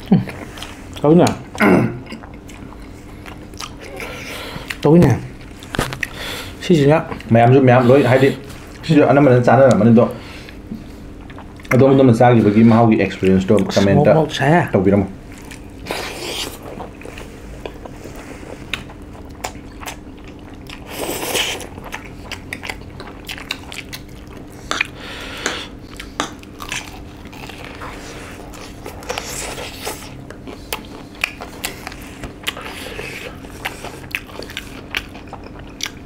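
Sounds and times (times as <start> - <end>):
chewing: 0.3 - 8.9, 9.6 - 13.8, 15.3 - 36.0
crunching fried chicken: 18.6 - 36.0.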